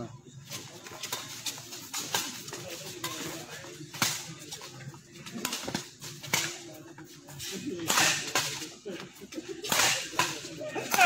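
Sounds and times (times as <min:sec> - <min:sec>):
rackets hitting shuttlecock: 0:01.0 - 0:06.8, 0:07.4 - 0:08.8, 0:09.6 - 0:11.0.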